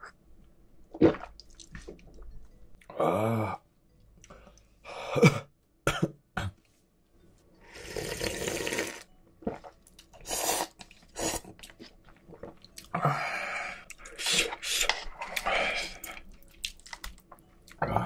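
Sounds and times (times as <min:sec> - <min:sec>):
slurping broth: 0:07.7 - 0:11.7.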